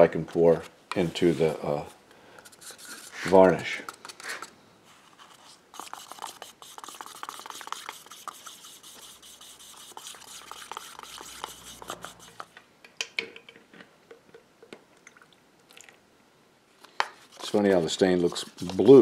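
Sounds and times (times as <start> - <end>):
stick stirring in plastic cup: 5.3 - 12.5, 17.2 - 19.0.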